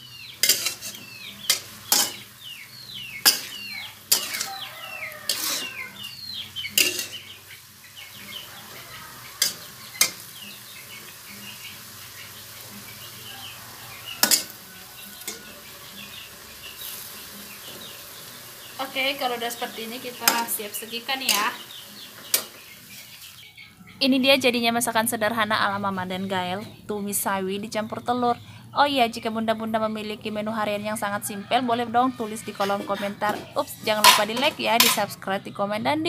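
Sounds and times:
low sizzle: 0.0s - 35.7s
metal spatula scraping wok: 0.4s - 18.0s, 18.7s - 23.4s, 32.2s - 35.2s
metal squeak on pan: 3.2s - 7.2s, 9.3s - 10.3s, 14.2s - 15.6s.

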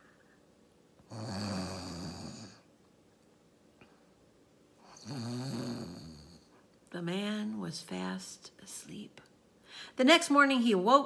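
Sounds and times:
woman imitating snoring: 1.1s - 2.6s, 4.8s - 6.5s.

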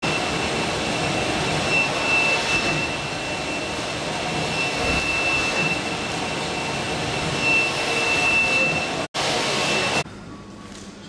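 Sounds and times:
high-pitched whine: 0.0s - 10.4s.

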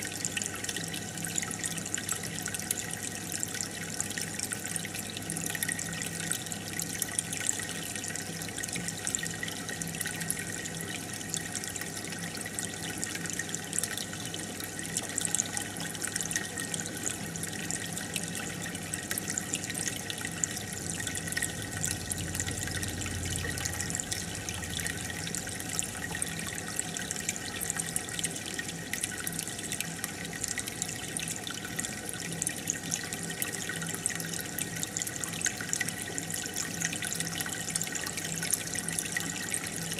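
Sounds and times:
aquarium water trickling and bubbling: 0.0s - 39.9s
faint low hum: 20.6s - 26.8s.

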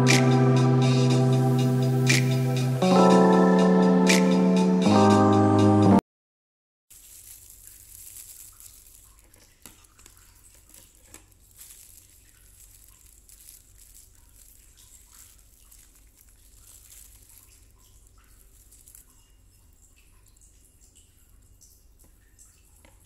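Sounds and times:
packet crinkling and rustling: 6.9s - 19.3s
small irregular ticks: 6.9s - 23.0s.

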